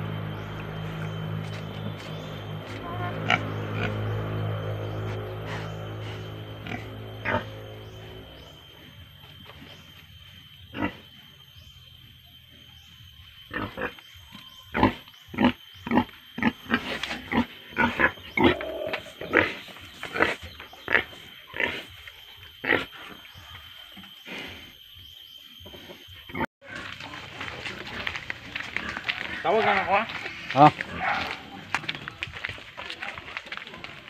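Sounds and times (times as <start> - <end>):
boar grunting: 14.7 - 22.0.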